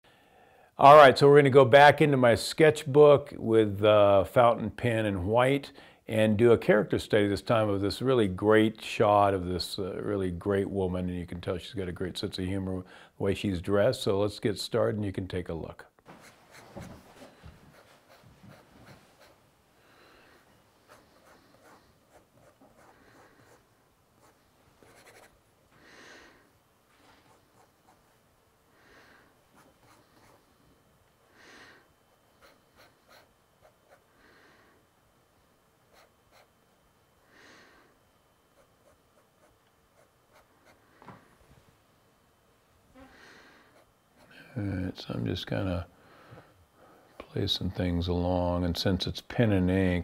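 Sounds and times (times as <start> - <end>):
soft breaths: 16.4 - 34.9, 42.9 - 44.8, 45.9 - 47.4
pen nib scratching paper: 20.9 - 23.6, 24.2 - 25.4, 32.4 - 34.0.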